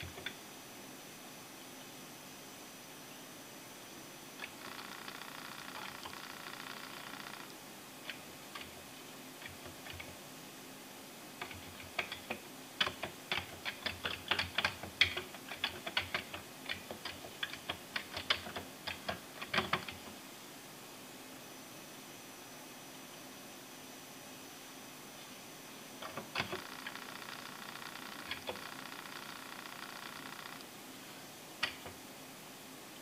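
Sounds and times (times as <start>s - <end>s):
keyboard typing: 4.5s - 7.5s, 9.4s - 10.2s, 11.4s - 20.1s, 26.0s - 30.7s.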